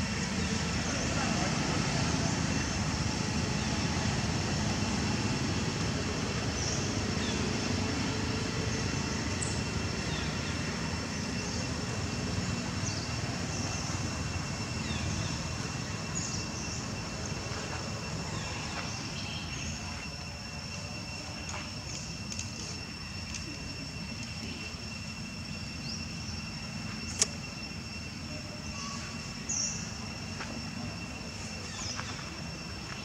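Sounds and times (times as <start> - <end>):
steady low rumble: 0.0 - 33.0
thin high-pitched drone: 8.6 - 33.0.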